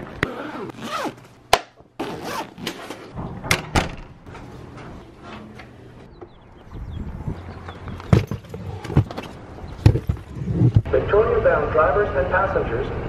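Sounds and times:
zipper: 0:00.2 - 0:01.2, 0:02.0 - 0:03.1
suitcase clicks and thunks: 0:08.0 - 0:10.4.

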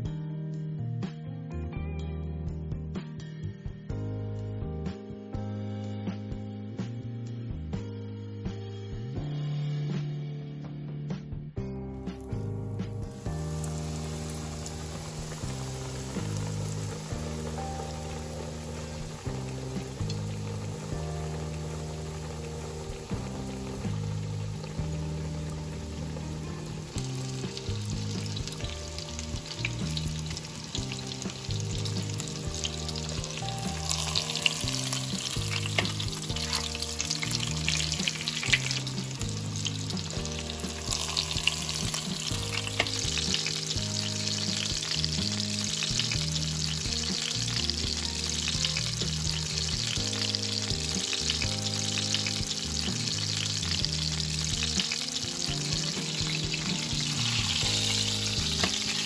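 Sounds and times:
soft background music: 0:00.0 - 0:59.0
chicken sizzling in oil: 0:12.0 - 0:59.0.

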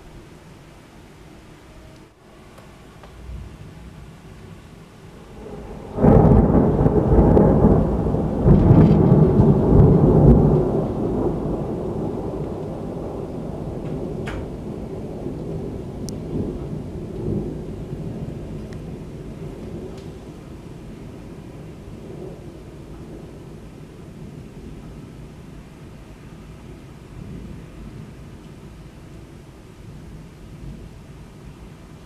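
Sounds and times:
rain falling: 0:00.0 - 0:32.0
thunder crack and rumble: 0:05.1 - 0:25.5.

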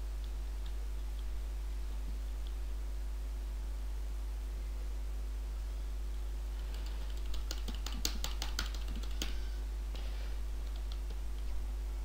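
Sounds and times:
low electrical hum: 0:00.0 - 0:12.0
keyboard typing: 0:06.6 - 0:09.6, 0:10.6 - 0:11.5.

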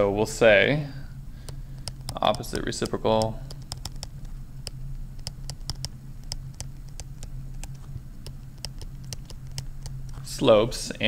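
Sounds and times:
steady low hum: 0:00.0 - 0:11.0
stylus tapping on tablet screen: 0:01.4 - 0:10.2.

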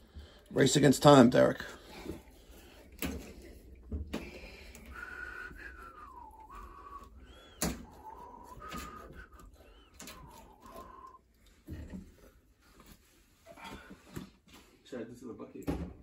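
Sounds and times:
person whistling a tune: 0:04.9 - 0:11.2.

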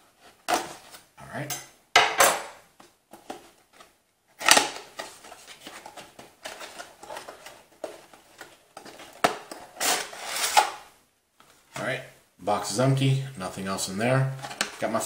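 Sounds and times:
cardboard crackles and scrapes: 0:04.9 - 0:10.7.

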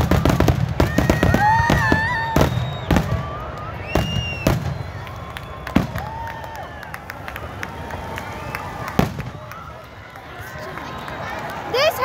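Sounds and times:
fireworks bangs and crackles: 0:00.0 - 0:11.1
rising whistling tones: 0:01.6 - 0:09.0.

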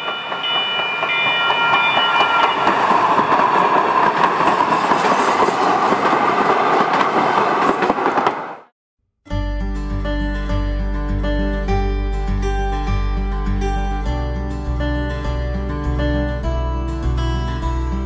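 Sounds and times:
train wheels rushing on rails: 0:00.0 - 0:08.7.

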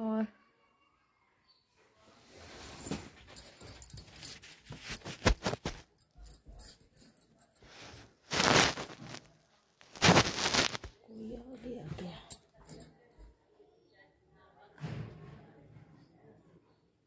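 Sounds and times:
fabric scraping microphone: 0:07.8 - 0:11.0.

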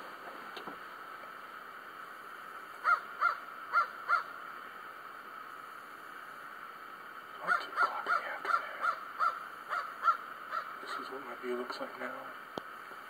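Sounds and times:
steady background hiss: 0:00.0 - 0:13.0
crow cawing: 0:02.8 - 0:04.4, 0:07.4 - 0:11.1.

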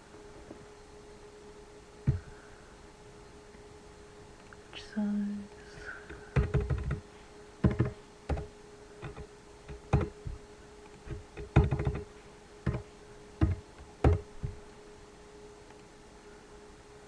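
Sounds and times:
faint steady hum: 0:00.0 - 0:17.0
computer keyboard typing: 0:06.3 - 0:07.0, 0:07.6 - 0:10.2, 0:11.0 - 0:14.2.

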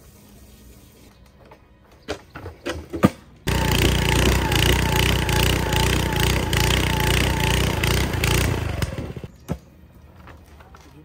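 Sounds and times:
earth auger engine under load: 0:03.4 - 0:09.3.

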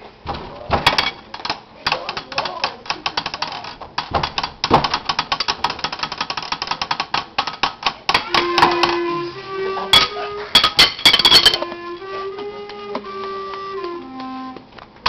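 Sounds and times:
rapid clicking and clattering: 0:00.8 - 0:08.2
wind instrument holding note: 0:08.1 - 0:14.7.

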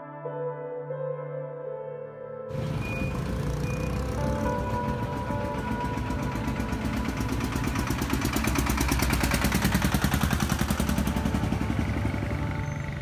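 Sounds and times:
truck engine chugging past: 0:02.5 - 0:13.0.

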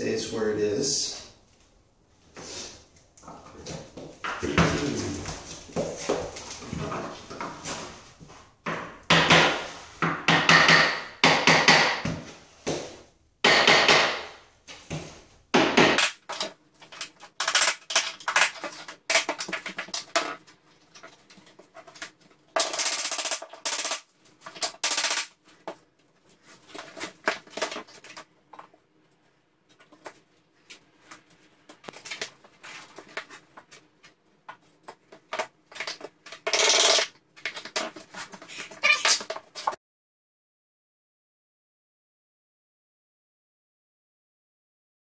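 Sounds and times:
hammer knocking on laminate planks: 0:08.7 - 0:12.2.

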